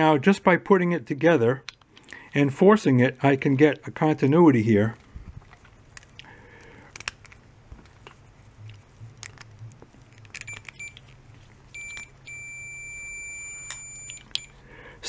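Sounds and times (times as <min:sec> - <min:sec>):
continuity tester beeping: 0:10.4 - 0:11.0, 0:11.7 - 0:14.6.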